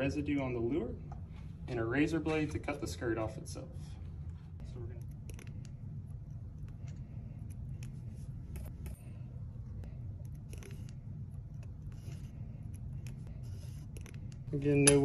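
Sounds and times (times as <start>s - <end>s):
low steady hum: 0.0s - 15.0s
blade and file scraping glue: 10.3s - 14.4s.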